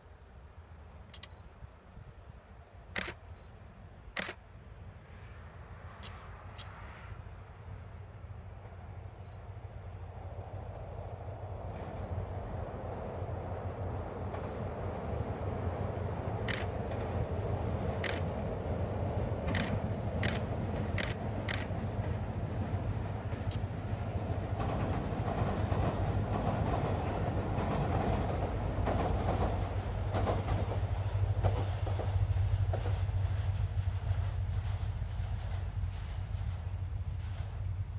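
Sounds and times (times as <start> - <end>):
train rumbling over bridge: 0.0 - 37.9
sharp clicks: 1.1 - 1.4, 2.9 - 3.2, 4.1 - 4.4, 18.0 - 18.3, 19.5 - 21.7
wheels clacking over rail joints: 19.3 - 33.6.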